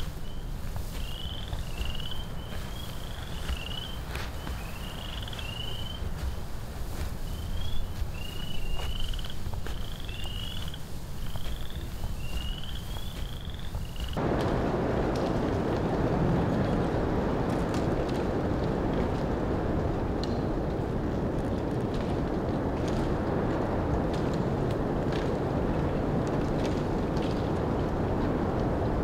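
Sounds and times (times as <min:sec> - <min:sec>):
small animals chirping: 0:00.0 - 0:06.1, 0:07.2 - 0:14.2
steady low rumble: 0:00.0 - 0:29.0.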